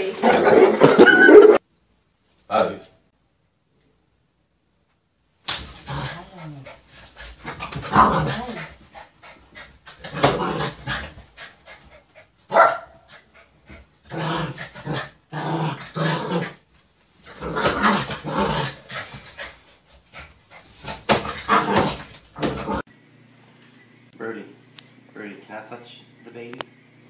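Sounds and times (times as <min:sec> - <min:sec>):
small dog barking and growling: 0:07.4 - 0:08.8, 0:09.9 - 0:11.4, 0:12.5 - 0:13.3, 0:17.3 - 0:19.2, 0:20.8 - 0:22.8.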